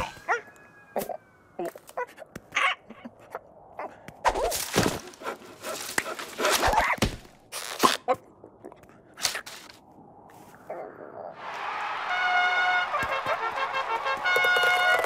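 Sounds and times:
cartoon footsteps: 12.9 - 15.0.

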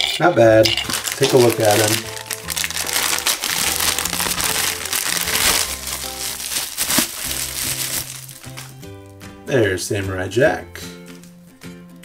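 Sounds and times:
plastic wrapping crinkling: 0.7 - 9.3.

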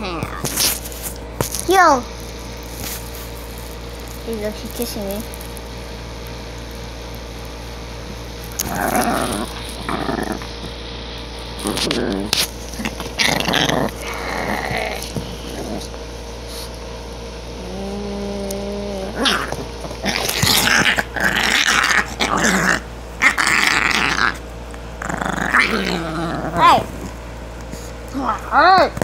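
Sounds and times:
small dog growling: 0.0 - 0.8, 8.4 - 10.8, 11.6 - 16.7, 17.6 - 24.4, 25.0 - 29.0.

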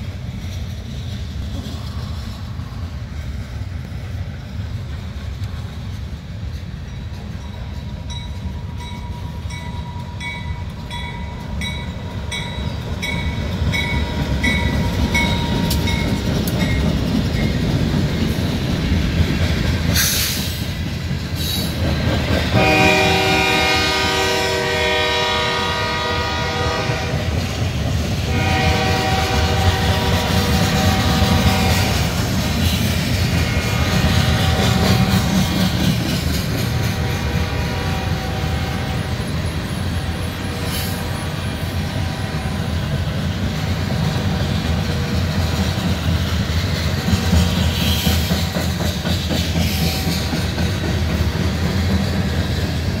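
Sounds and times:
train wheels rumbling on rail: 0.0 - 53.0
locomotive horn: 22.5 - 27.4, 28.2 - 32.2, 33.4 - 35.5, 36.8 - 39.3.

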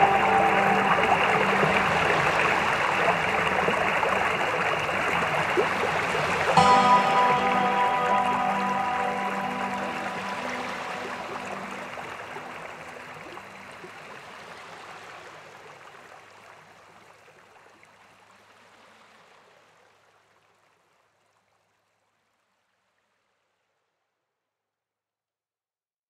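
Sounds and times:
music held notes: 0.0 - 14.0.

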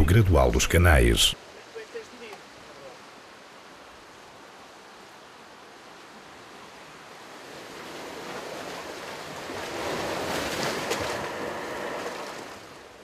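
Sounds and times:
seawater surging over rock: 1.4 - 13.0.

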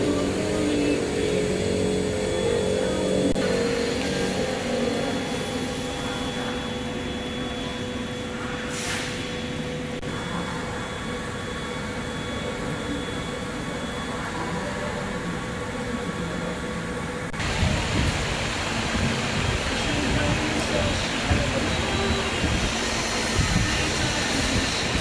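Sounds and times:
factory machinery noise: 0.0 - 25.0
faint machine hum and whine: 0.0 - 25.0
brief hissing: 8.6 - 9.3.

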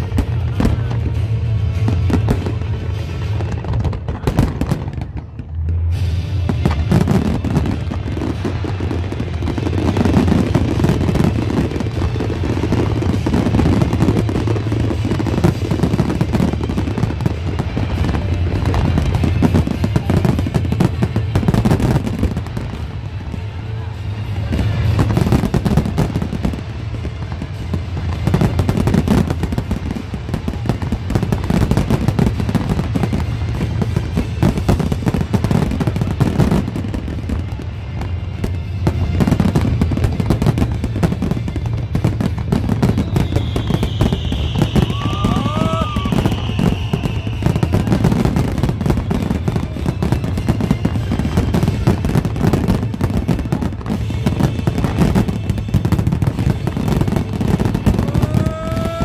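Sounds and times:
fireworks bangs and crackling: 0.0 - 59.0
music playing: 0.0 - 59.0
high falling whistle: 43.0 - 47.9.

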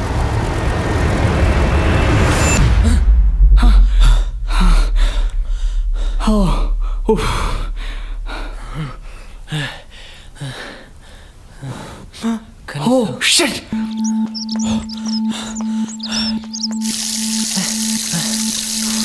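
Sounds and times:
deep rumble: 0.0 - 9.8.

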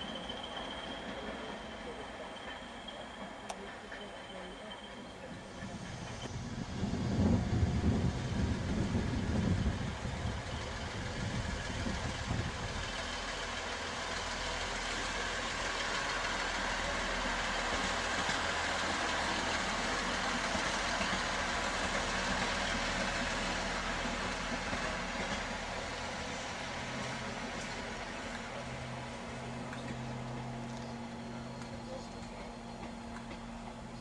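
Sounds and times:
diesel train engines humming: 0.0 - 34.0
loud low rumble: 5.7 - 13.0.

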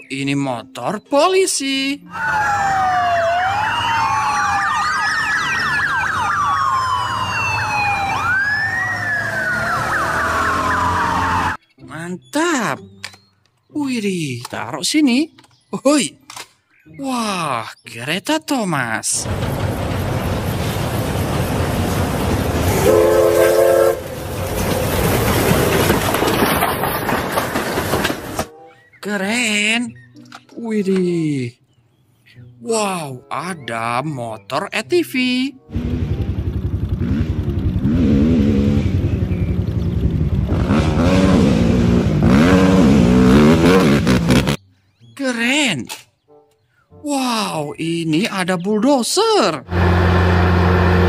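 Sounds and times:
police sirens wailing: 2.0 - 11.6
siren fast yelp: 2.1 - 11.6
train coaches running past: 19.2 - 28.6
steam locomotive whistle: 22.7 - 24.2
low engine rumble: 35.7 - 41.0.

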